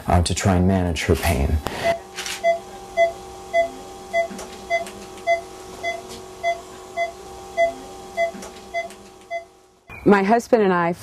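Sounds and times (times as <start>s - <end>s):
faint steady hum: 0.0s - 11.0s
patient monitor beeping: 1.8s - 9.6s.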